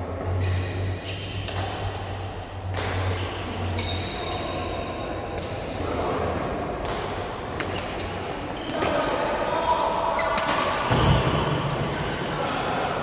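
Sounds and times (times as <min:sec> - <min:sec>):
rackets hitting shuttlecock: 0:00.2 - 0:04.2, 0:05.3 - 0:09.1.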